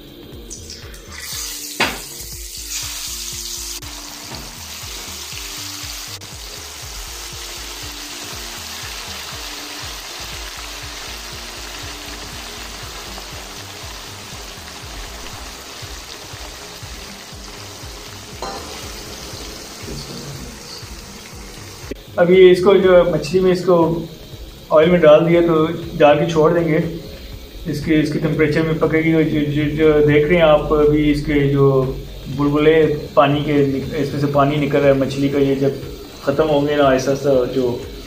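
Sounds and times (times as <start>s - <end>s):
fish sizzling in hot oil: 0.4s - 38.0s
sharp clink: 18.4s - 20.2s.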